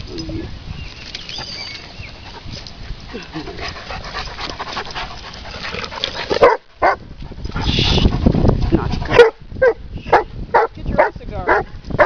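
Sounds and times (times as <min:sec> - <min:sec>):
dog barking: 0:06.4 - 0:07.0, 0:09.1 - 0:11.7.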